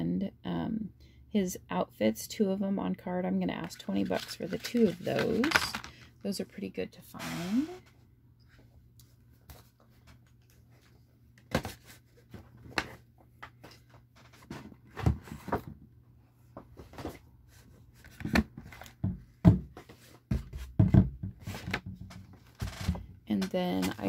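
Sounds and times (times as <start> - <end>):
cardboard packaging knocks and scrapes: 18.1 - 24.0.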